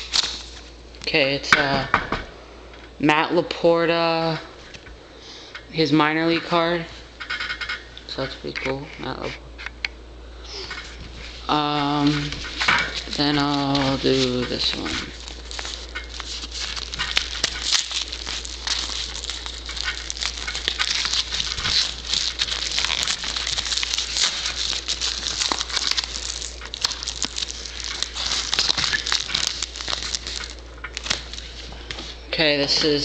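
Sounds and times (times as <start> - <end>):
padded envelope crinkling: 10.8 - 33.0.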